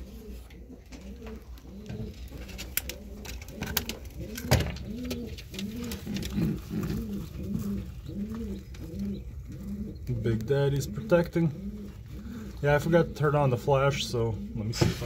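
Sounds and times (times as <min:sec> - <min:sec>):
pigeon cooing: 0:00.0 - 0:15.0.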